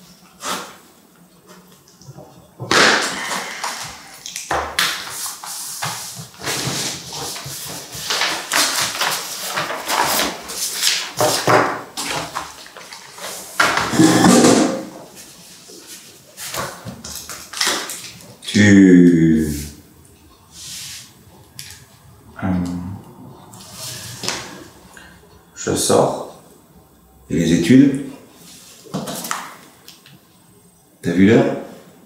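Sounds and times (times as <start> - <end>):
paper sheets rustling: 4.8 - 18.3.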